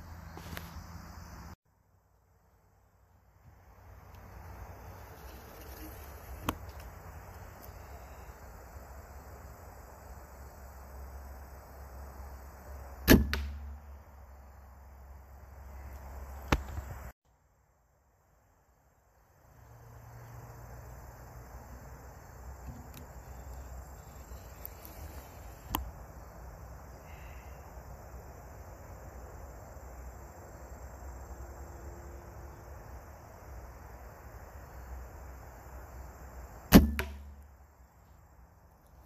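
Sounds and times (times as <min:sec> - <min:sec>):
bow string snapping: 0:13.1 - 0:13.8.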